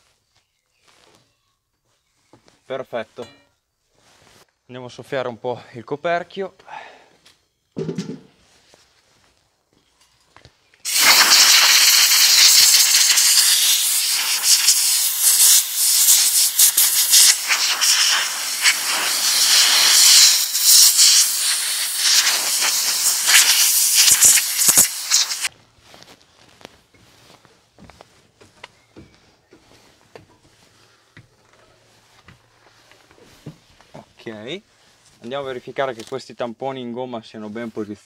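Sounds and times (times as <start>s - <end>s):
compressed air blow gun hissing: 10.9s - 25.5s.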